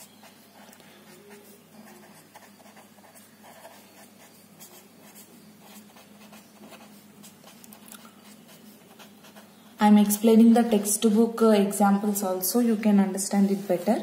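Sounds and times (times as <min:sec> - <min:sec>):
pen scratching on paper: 0:00.0 - 0:09.6
faint low hum: 0:00.0 - 0:14.0.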